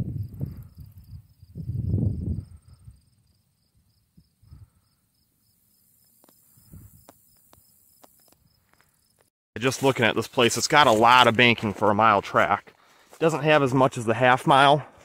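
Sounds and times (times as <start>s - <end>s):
faint insect trill: 0.1s - 9.3s.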